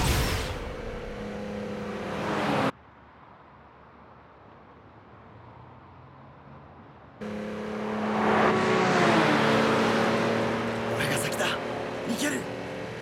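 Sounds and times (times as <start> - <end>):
sports car engines revving: 7.2 - 13.0.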